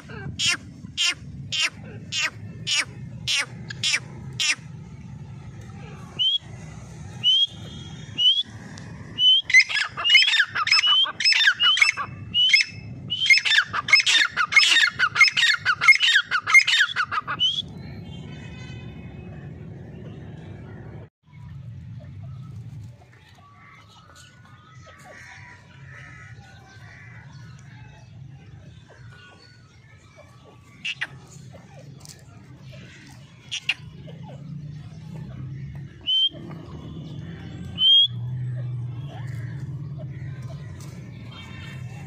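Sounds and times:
francolins calling: 7.1 - 17.8, 23.4 - 42.0.

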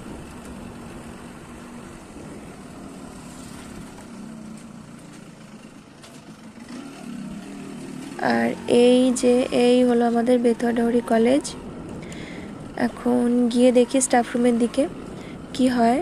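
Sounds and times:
motorcycle engine idling: 0.0 - 12.9.

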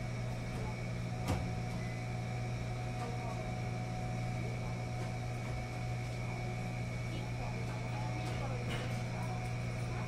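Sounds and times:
washing machines humming: 0.0 - 10.0.

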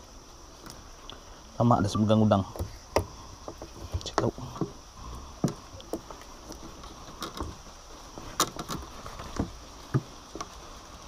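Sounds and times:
faint steady hiss: 0.0 - 11.0
knocks and clicks of gear: 2.4 - 4.8, 5.4 - 10.6.

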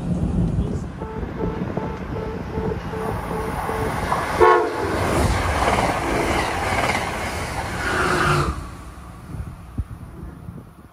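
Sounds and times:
train wheel and air rush: 0.0 - 10.9
train horn blast: 1.0 - 5.0.

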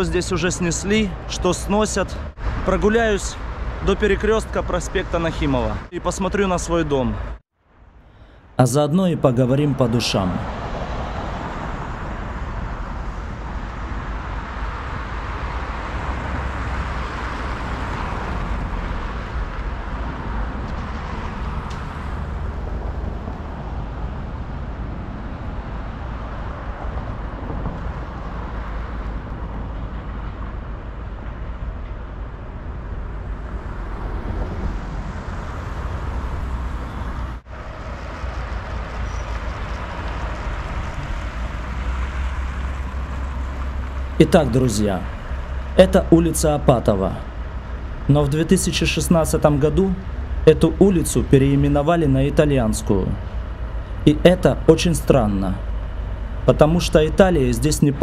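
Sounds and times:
passing road traffic: 0.0 - 58.0.

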